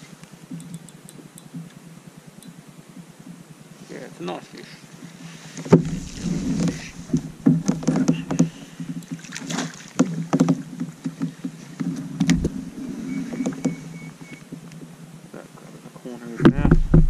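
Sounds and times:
net and rod knocking on kayak: 0:05.7 - 0:13.8.

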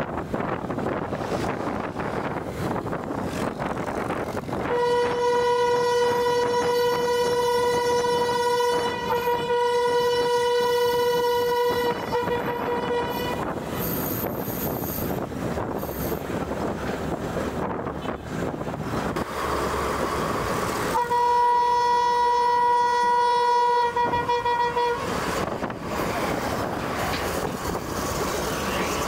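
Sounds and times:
wind on microphone: 0:00.0 - 0:19.3, 0:23.9 - 0:29.0
train running noise: 0:00.0 - 0:29.0
train horn long blast: 0:04.6 - 0:13.6, 0:20.9 - 0:25.4.

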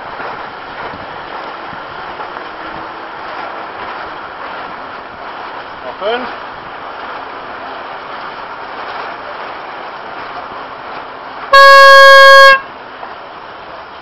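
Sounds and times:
loud horn blast: 0:11.5 - 0:12.7.

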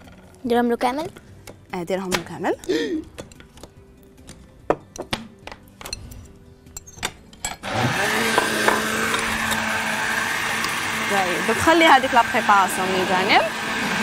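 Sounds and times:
utensils and bowls clinking: 0:04.3 - 0:09.9
blender running: 0:07.6 - 0:14.0.

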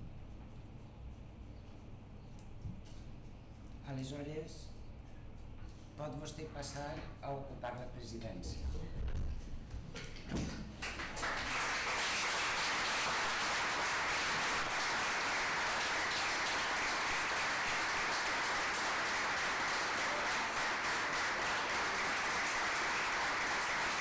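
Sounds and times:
audience applauding: 0:10.8 - 0:24.0.

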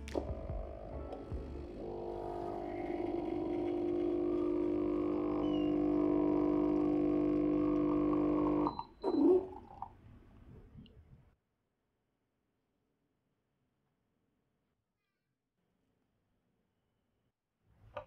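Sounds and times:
coffee machine pump humming: 0:00.0 - 0:09.6
coffee gurgling spurt: 0:01.8 - 0:08.7.

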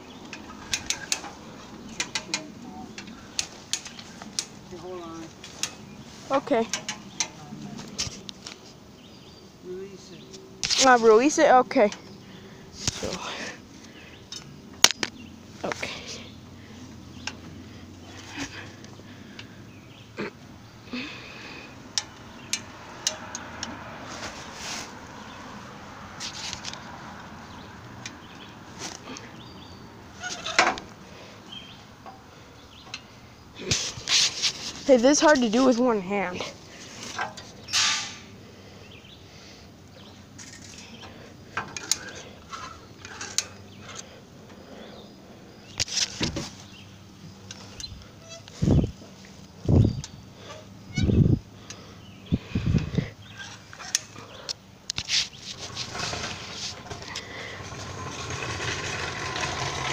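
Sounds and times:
scuffs and rustles: 0:24.0 - 0:25.1, 0:33.6 - 0:35.8, 0:55.0 - 0:57.1
metallic clatter: 0:55.4 - 0:59.9
winch ratchet clicking: 0:55.9 - 0:59.9.

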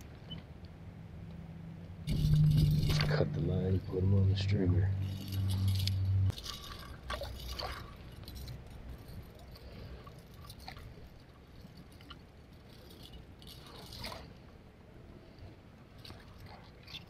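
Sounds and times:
low steady hum: 0:00.0 - 0:17.0
small water sounds: 0:05.0 - 0:17.0.

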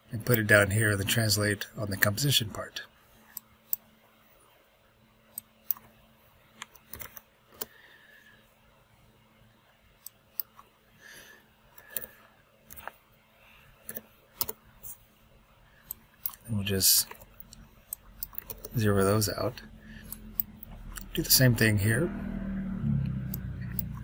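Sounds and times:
computer mouse clicks: 0:05.3 - 0:06.0, 0:06.6 - 0:07.7, 0:10.0 - 0:10.6, 0:11.8 - 0:13.0, 0:13.8 - 0:15.0, 0:15.8 - 0:18.8, 0:23.0 - 0:24.0.

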